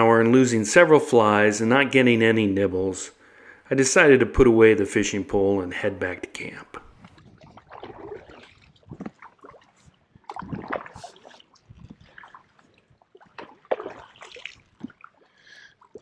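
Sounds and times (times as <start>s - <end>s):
paddle splashing in water: 6.8s - 16.0s.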